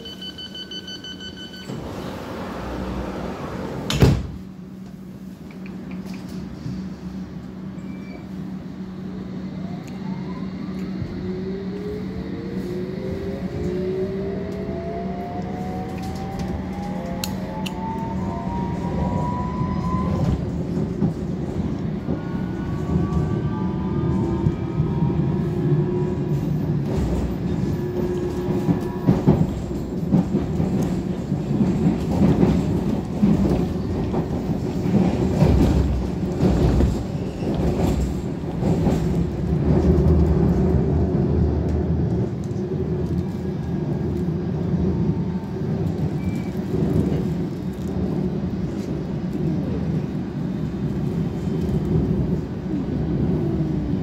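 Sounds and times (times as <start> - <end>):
train whine accelerating: 0.0 - 4.0, 7.8 - 20.8
train rumble: 0.0 - 54.0.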